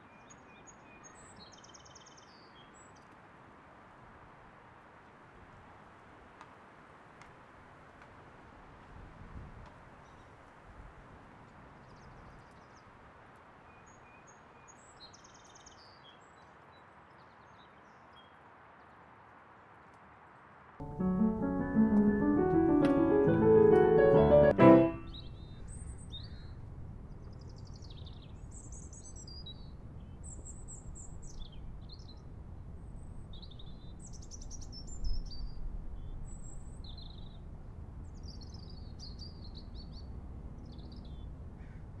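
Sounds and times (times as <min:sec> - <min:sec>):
piano music: 0:20.8 - 0:25.3.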